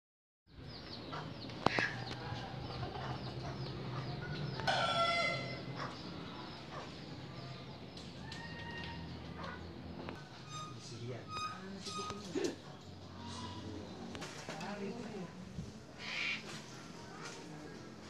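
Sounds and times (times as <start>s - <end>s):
chicks peeping: 0.7s - 10.3s.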